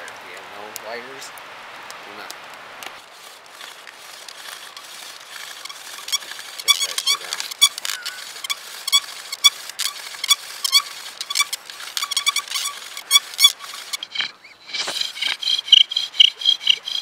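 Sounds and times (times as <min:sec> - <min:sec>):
bow drill spindle squeaking: 0:03.2 - 0:17.0.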